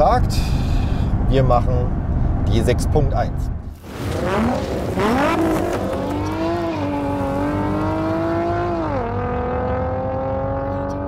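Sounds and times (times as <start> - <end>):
car engine revving: 3.8 - 11.0.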